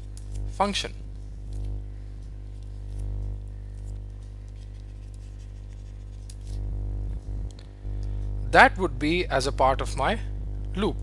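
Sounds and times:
low electrical hum: 0.0 - 11.0
pen scratching handwriting: 4.4 - 6.6.

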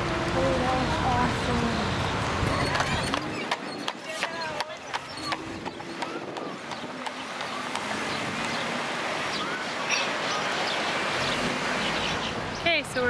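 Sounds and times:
street background noise: 0.0 - 13.0
wind: 0.0 - 13.0.

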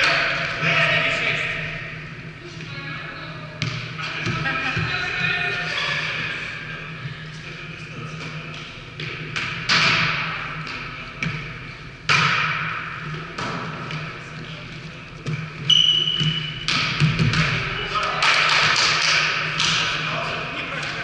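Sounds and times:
volleyball smacks echoing: 16.2 - 20.0.

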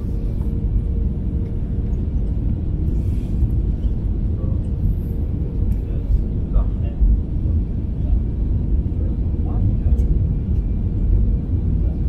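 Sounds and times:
engine rumble and rushing air: 0.0 - 12.0.

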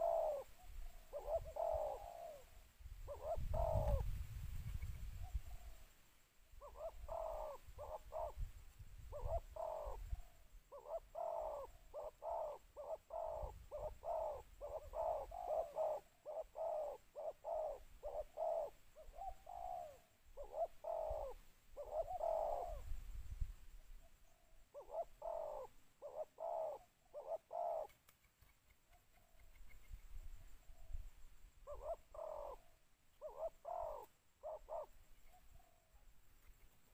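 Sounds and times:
dove cooing: 0.0 - 4.2, 5.2 - 5.9, 6.6 - 8.5, 9.1 - 23.0, 24.2 - 28.0, 30.5 - 36.1.

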